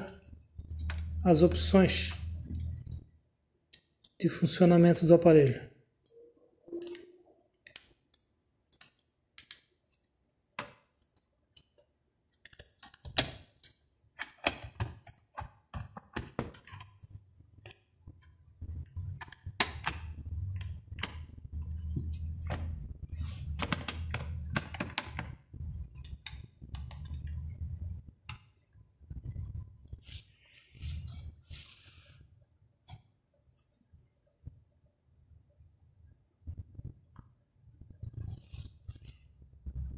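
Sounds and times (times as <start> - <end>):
low rumble: 26.7 - 28.1.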